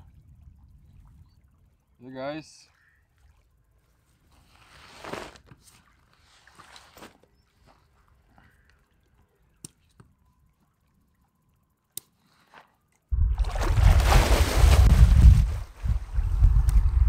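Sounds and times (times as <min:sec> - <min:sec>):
person and dog splashing in water: 0:13.4 - 0:15.1.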